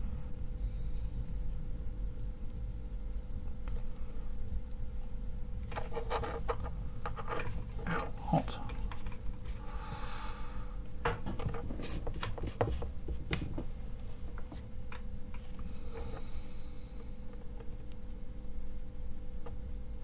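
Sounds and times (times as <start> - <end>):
circuit board clicking and scraping: 5.6 - 9.5.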